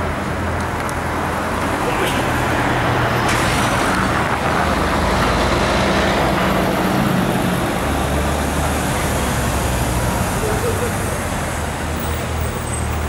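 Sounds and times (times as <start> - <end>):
traffic engine drone with road noise: 0.0 - 13.0.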